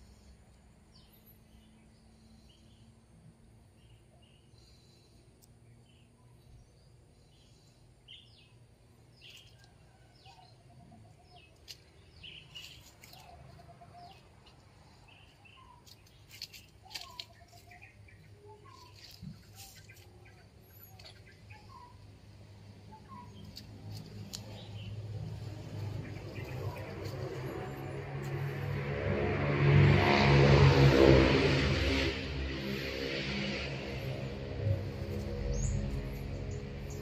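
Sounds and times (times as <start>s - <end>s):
faint birds calling: 3.7s - 28.7s.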